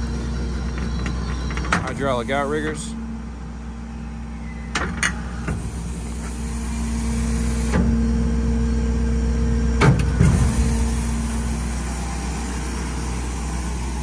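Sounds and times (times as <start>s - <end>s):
diesel engine idling: 0.0s - 14.0s
sharp clicks and knocks: 0.5s - 2.0s.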